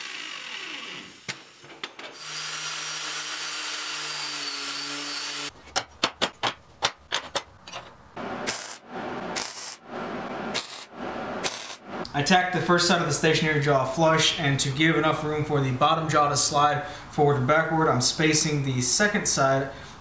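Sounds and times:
angle grinder on steel: 0:00.0 - 0:01.6, 0:02.2 - 0:05.5
crackling tack welds: 0:08.4 - 0:09.8, 0:10.5 - 0:12.2.

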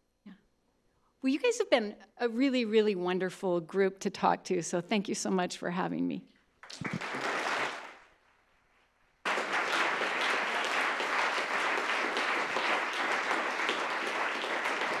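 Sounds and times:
audience applauding: 0:06.6 - 0:08.1, 0:09.2 - 0:15.0.

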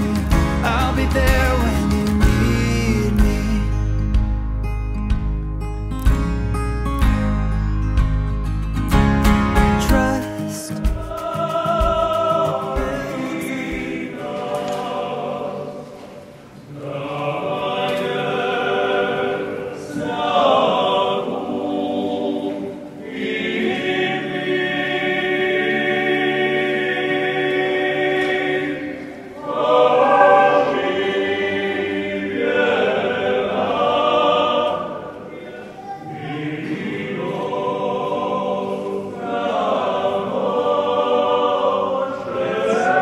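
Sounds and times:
choir singing: 0:00.0 - 0:03.8, 0:09.8 - 0:43.0.

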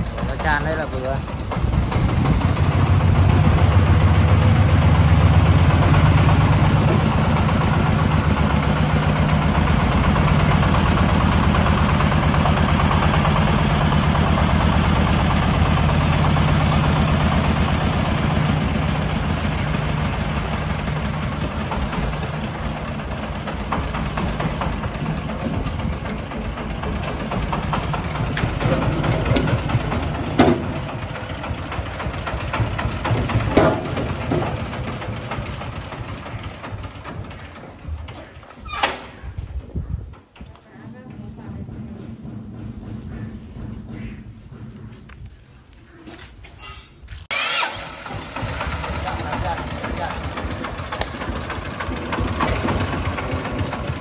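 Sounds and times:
single-cylinder diesel engine: 0:00.0 - 0:40.0, 0:40.6 - 0:45.2, 0:47.2 - 0:54.0
sharp knocks: 0:32.4 - 0:35.1.

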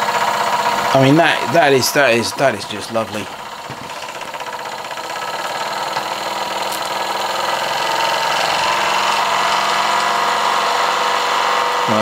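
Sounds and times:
model steam engine running: 0:00.0 - 0:12.0.

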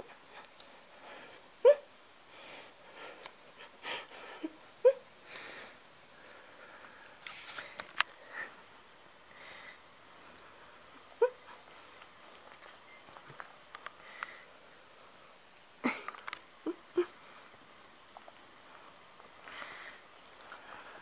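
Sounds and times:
dog whimpering: 0:11.2 - 0:11.6.

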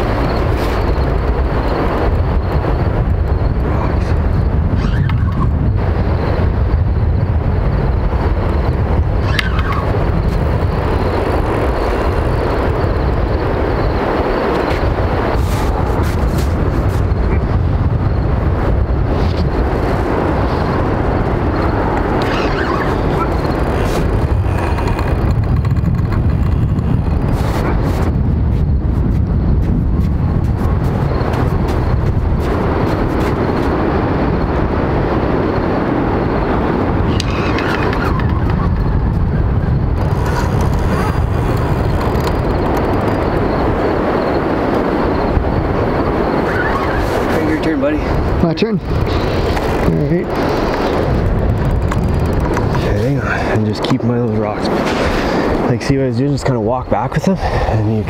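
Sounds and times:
wind buffeting microphone: 0:00.0 - 0:58.0.

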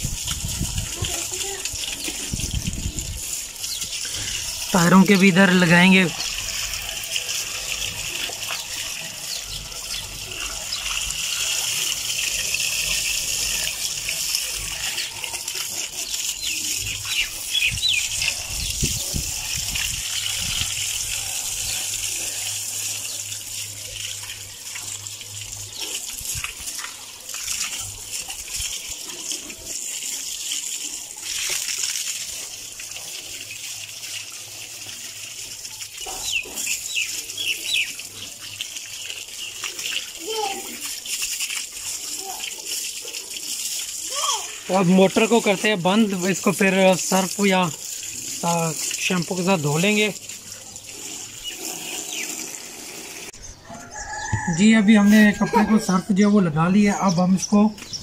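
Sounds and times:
hose water splashing: 0:00.0 - 0:58.0.

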